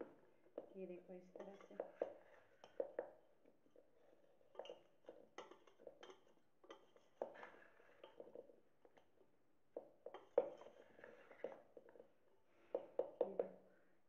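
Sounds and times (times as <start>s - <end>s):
spoon scraping a steel bowl: 1.4s - 2.8s.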